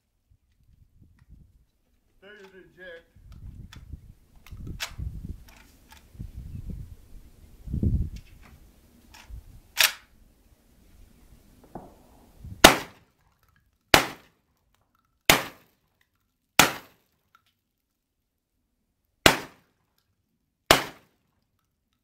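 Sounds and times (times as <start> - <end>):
shotgun shots: 11.6 - 13.0, 13.9 - 14.3, 15.3 - 15.7, 16.6 - 17.0, 19.2 - 19.6, 20.7 - 21.1.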